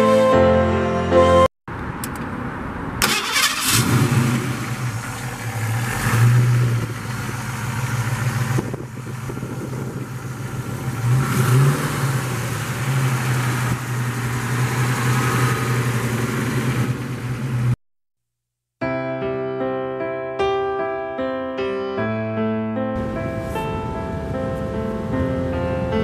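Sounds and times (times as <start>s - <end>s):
engine idling and revving: 3.0s - 17.8s.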